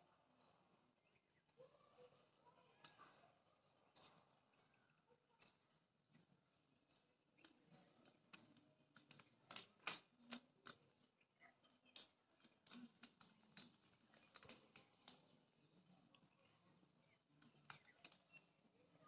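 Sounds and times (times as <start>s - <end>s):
pigeon pecking on ledge: 3.9s - 11.2s, 11.8s - 18.5s.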